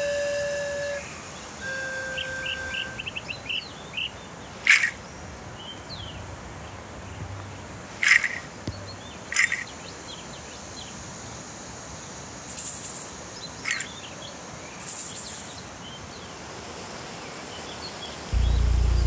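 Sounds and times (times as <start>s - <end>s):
faint bird chirps: 0.0s - 6.2s, 8.0s - 10.9s.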